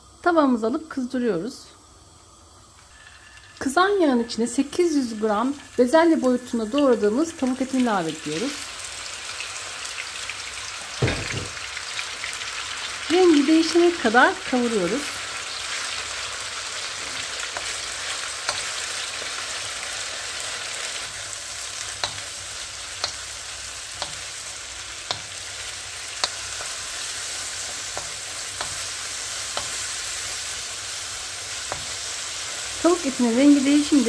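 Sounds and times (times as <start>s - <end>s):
chicken sizzling in oil: 2.3s - 34.0s
wooden spoon knocking pan: 11.0s - 11.6s.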